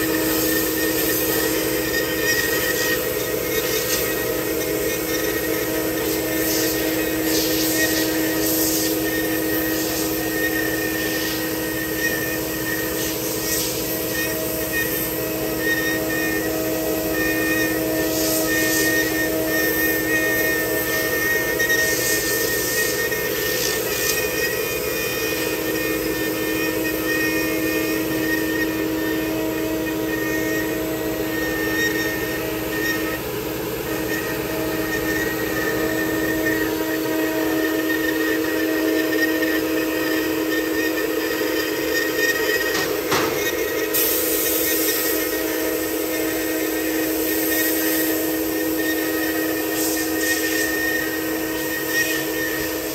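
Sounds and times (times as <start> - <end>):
bit cutting wood hiss: 0.0 - 52.9
cnc router spindle whining: 0.0 - 52.9.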